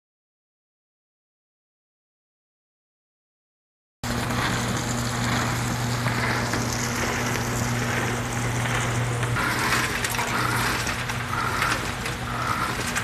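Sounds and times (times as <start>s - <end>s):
conveyor motor hum: 4.0s - 13.0s
peanuts rattling on conveyor: 4.1s - 13.0s.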